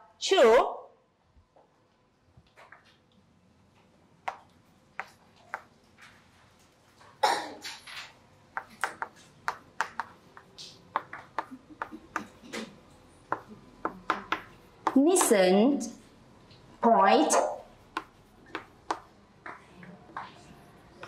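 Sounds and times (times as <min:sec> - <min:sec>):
chalk clicking on chalkboard: 0:04.2 - 0:05.8, 0:08.5 - 0:15.5, 0:17.2 - 0:19.6.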